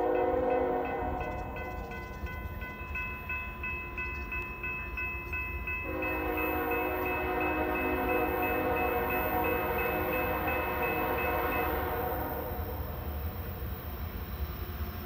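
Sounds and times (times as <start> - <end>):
locomotive air horn: 0.0 - 1.3, 5.8 - 12.8
crossing warning bell ringing: 0.0 - 15.0.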